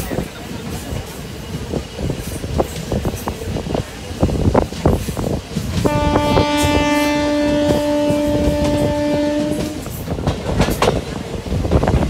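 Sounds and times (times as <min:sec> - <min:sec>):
train wheels clicking over rail joints: 0:00.0 - 0:12.0
train horn blast: 0:05.8 - 0:10.0.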